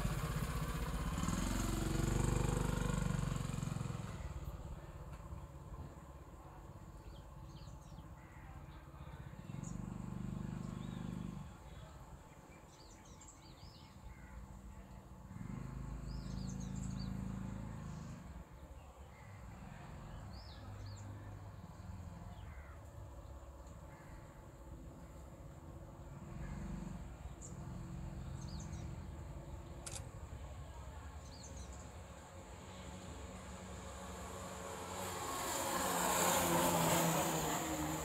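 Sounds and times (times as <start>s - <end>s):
motor vehicles passing: 0.0s - 38.0s
birds chirping: 6.9s - 24.4s, 26.2s - 34.1s.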